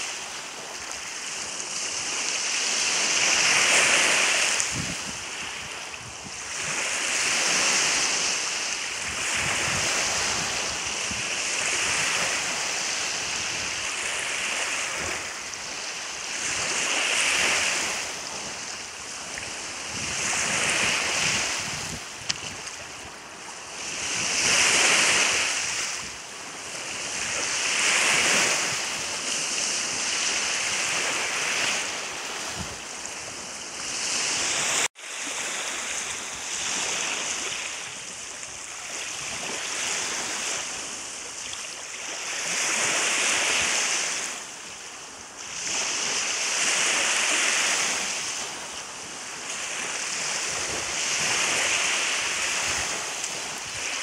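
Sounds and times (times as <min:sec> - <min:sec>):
lake waves washing on shore: 0:00.0 - 0:54.0.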